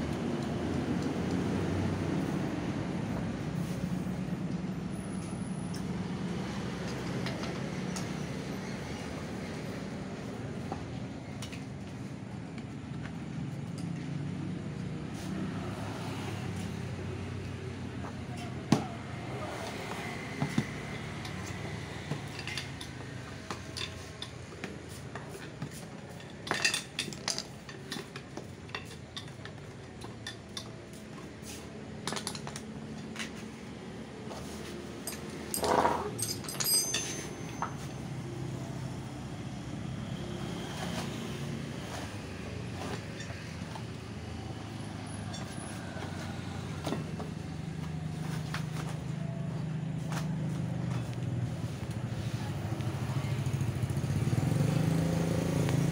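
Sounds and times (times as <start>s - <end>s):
hand tools clinking on metal: 21.2s - 33.5s, 34.4s - 38.2s, 42.8s - 49.4s.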